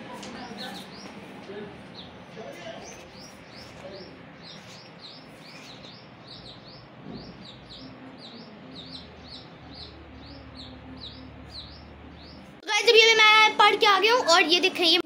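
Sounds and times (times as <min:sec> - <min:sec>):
baby chick peeping: 0:02.8 - 0:12.5.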